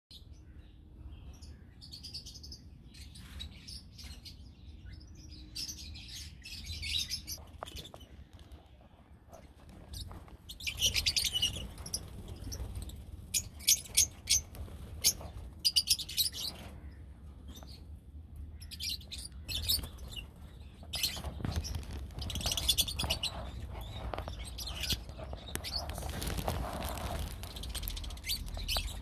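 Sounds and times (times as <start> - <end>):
lovebirds chirping: 0.1 - 29.0.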